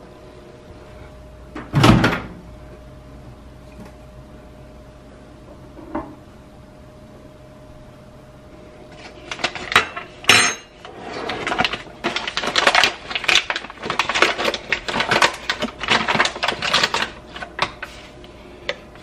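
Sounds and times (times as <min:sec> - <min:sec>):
coffee bag crinkling: 0:09.0 - 0:09.8, 0:10.9 - 0:18.2.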